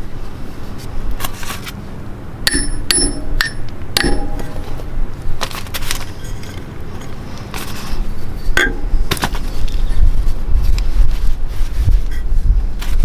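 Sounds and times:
metal pipe clinking on wheel hub: 2.5 - 4.8.

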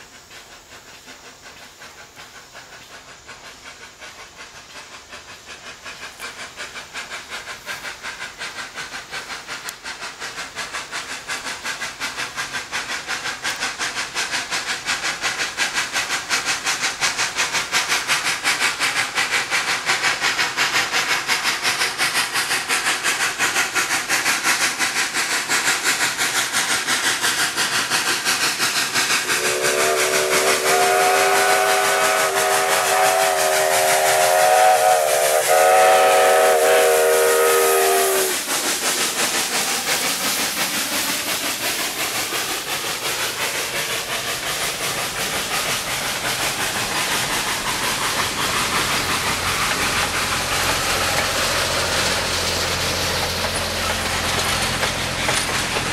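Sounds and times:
steam locomotive exhaust chuffing: 0.0 - 55.9
steam whistle blasts: 29.2 - 38.4.

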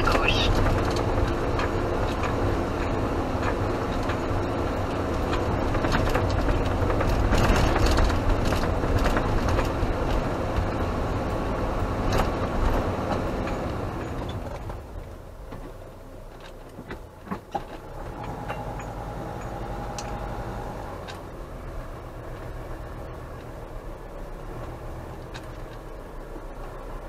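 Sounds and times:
rattles and knocks: 0.0 - 10.8
engine and tyre rumble: 0.0 - 27.0.

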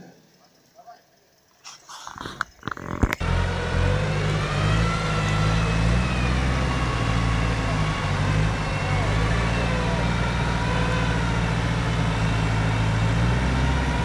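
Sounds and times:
vehicle engine running: 3.2 - 14.0.

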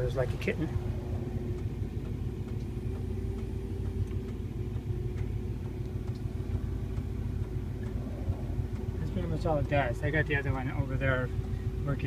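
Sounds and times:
car engine idling: 0.0 - 12.0
faint engine tick: 0.0 - 12.0.

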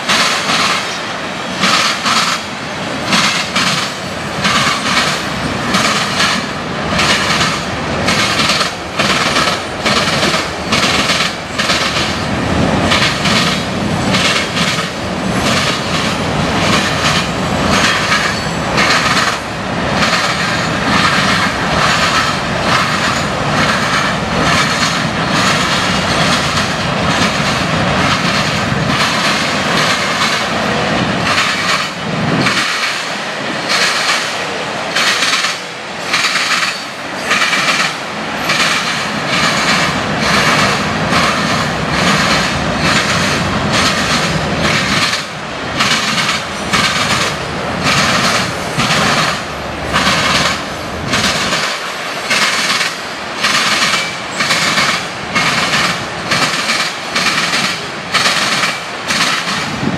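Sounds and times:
steel wheels rumbling on rails: 0.0 - 59.9.

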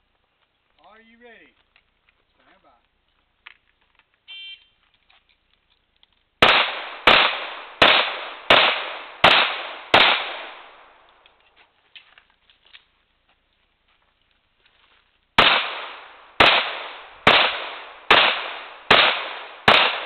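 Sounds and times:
pistol shots echoing: 6.4 - 11.0, 15.4 - 20.0.

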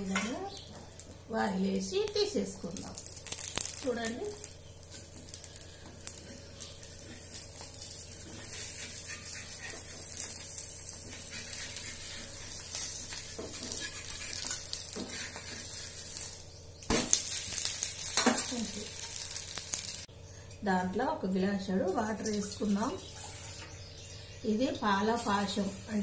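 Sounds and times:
dosa sizzling on a griddle: 1.8 - 20.1
metal spatula scraping: 4.9 - 16.4.

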